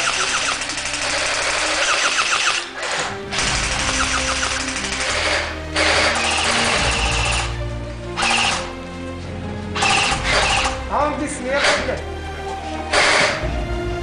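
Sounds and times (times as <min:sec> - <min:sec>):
background music with bass: 0:00.0 - 0:14.0.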